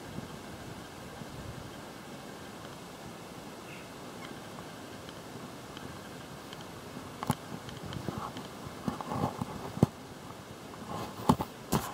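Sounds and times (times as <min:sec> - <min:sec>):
steady background noise: 0:00.0 - 0:11.9.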